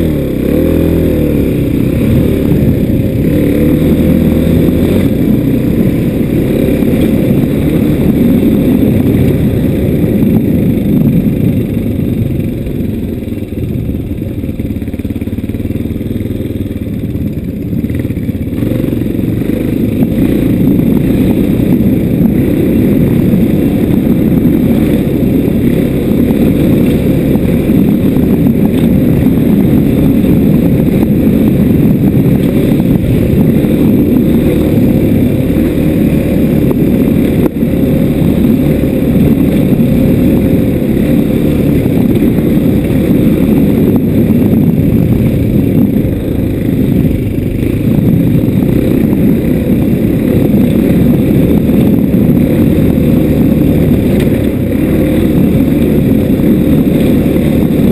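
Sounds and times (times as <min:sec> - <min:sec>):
motorbike engine rumble: 0:00.0 - 0:57.9
wind on microphone: 0:00.0 - 0:57.9.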